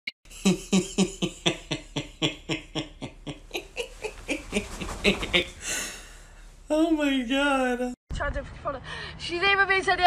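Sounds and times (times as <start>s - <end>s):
man laughing hard: 0.3s - 6.0s.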